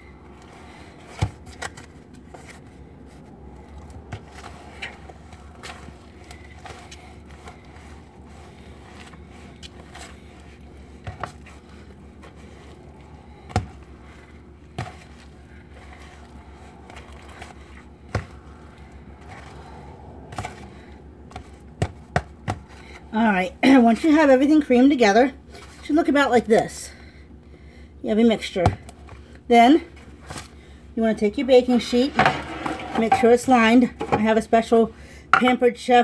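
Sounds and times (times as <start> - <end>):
steady low hum: 0.0 - 36.0
spoon scraping dough in bowl: 31.8 - 34.2.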